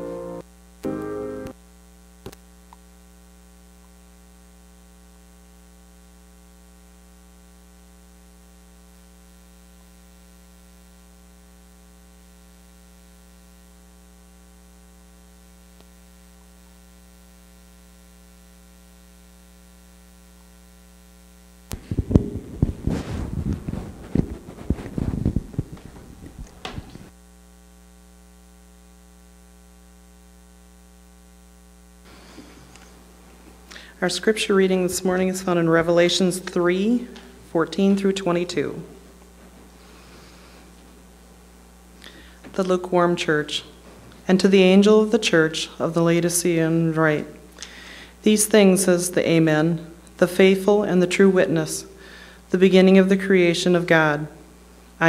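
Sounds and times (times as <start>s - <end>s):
electrical mains hum: 0.0s - 55.0s
microphone handling knocks: 21.7s - 27.1s.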